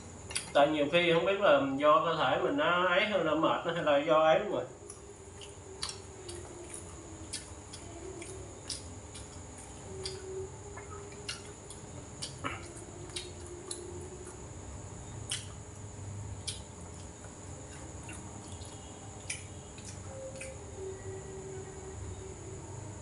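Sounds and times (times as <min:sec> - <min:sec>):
person chewing food: 0:04.8 - 0:14.5, 0:15.2 - 0:20.7
high-pitched whine: 0:17.4 - 0:23.0.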